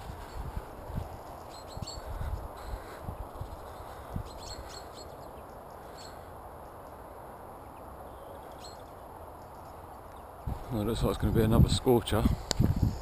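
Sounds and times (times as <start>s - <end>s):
high bird chirps: 1.3s - 2.8s, 4.2s - 6.2s.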